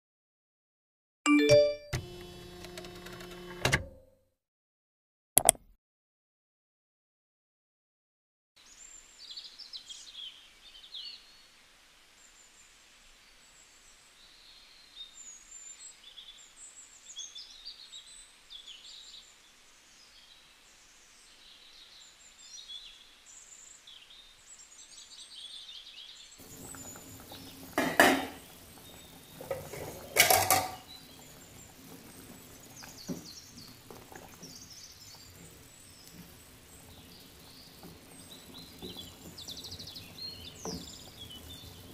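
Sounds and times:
small birds chirping: 8.6 - 41.9
metal utensil clattering on cookware: 27.8 - 28.4, 29.5 - 30.9.

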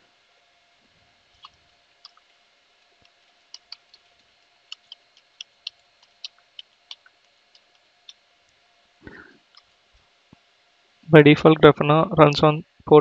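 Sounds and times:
low steady hum: 0.0 - 13.0
computer keyboard typing: 3.0 - 8.2.

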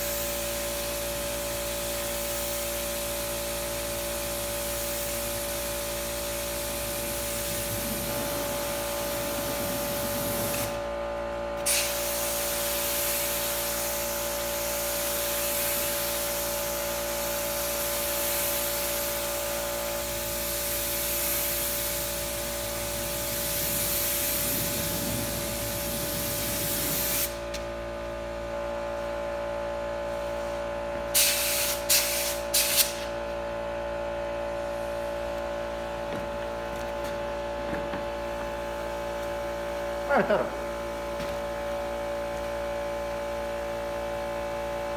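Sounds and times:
spray gun hissing: 0.0 - 1.0, 4.2 - 10.9, 11.6 - 16.5, 17.3 - 27.5, 31.1 - 33.1
steady whine: 4.6 - 12.6, 21.6 - 31.2, 32.9 - 44.9.

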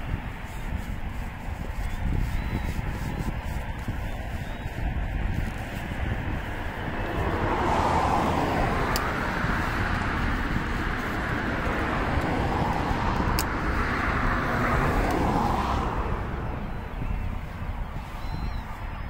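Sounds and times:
distant road traffic: 0.0 - 19.0.

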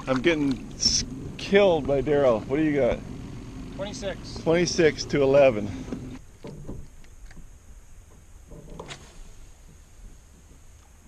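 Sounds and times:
faint small splashes: 0.0 - 1.0
low steady hum: 0.0 - 11.0.

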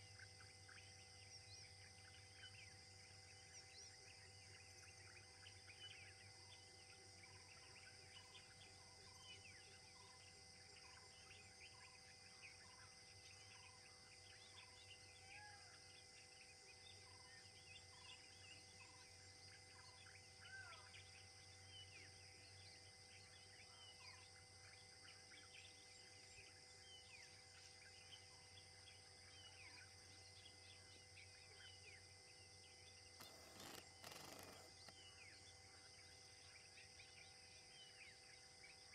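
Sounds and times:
high insect drone: 0.0 - 38.9.

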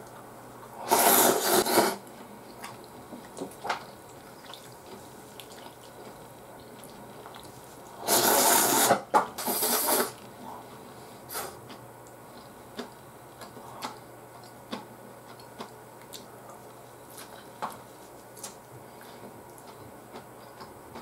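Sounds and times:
man slurping noodles: 0.8 - 2.0, 8.0 - 10.2
faint chewing: 1.7 - 8.0, 9.5 - 21.0.

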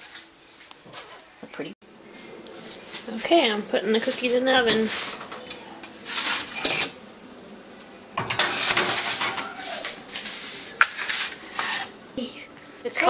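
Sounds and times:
metal baking sheet clattering: 4.0 - 5.5, 8.2 - 10.0.

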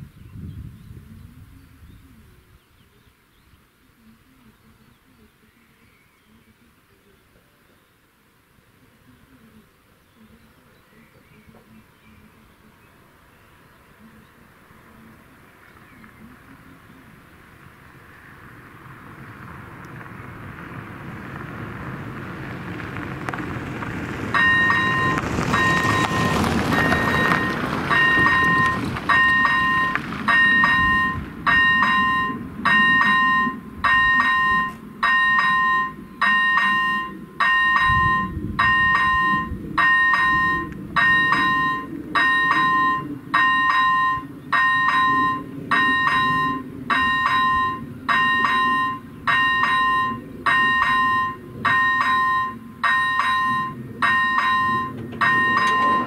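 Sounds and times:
level crossing bell ringing: 24.4 - 56.0.

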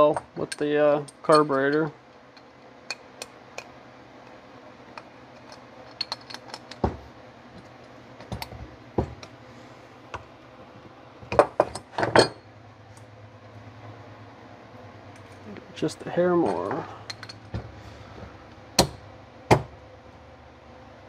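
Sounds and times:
metal wrench clicks and knocks: 5.0 - 6.9.

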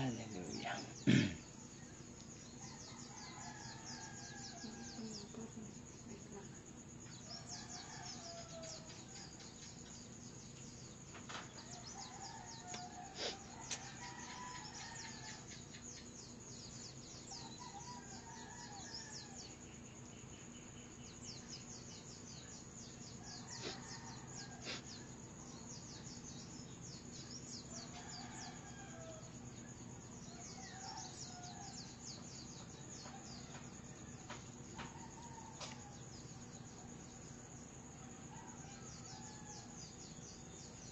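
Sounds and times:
roosters crowing faintly: 11.2 - 15.8, 23.1 - 25.8.

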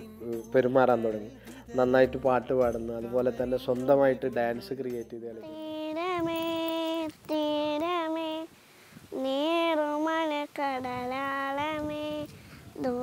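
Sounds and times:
girl singing unaccompanied: 0.0 - 13.0
girl breathing: 8.5 - 9.2, 12.2 - 12.8.

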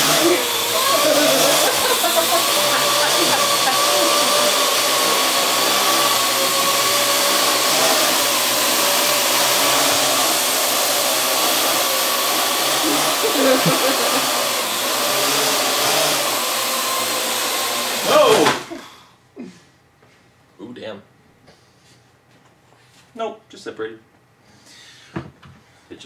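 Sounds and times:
high motor whine: 0.0 - 18.4
quadcopter drone whirring: 0.0 - 18.5.

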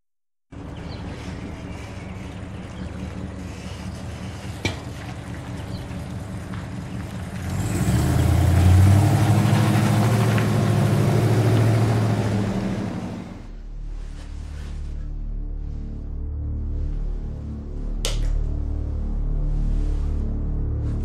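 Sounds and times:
suv engine driving past: 5.2 - 13.6.

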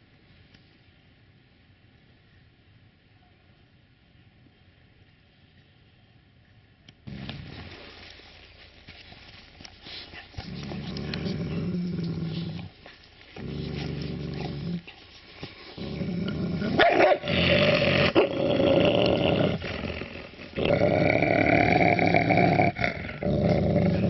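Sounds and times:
dog growling deeply: 10.4 - 15.0, 15.7 - 24.0.

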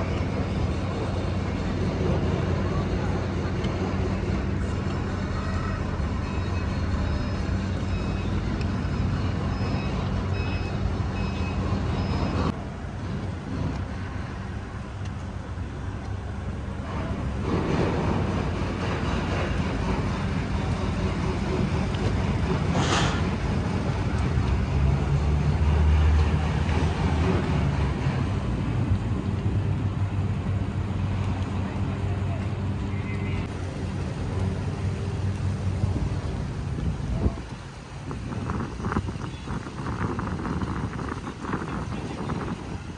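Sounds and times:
boat engines humming: 0.0 - 42.9
churning water wash: 0.0 - 42.9.

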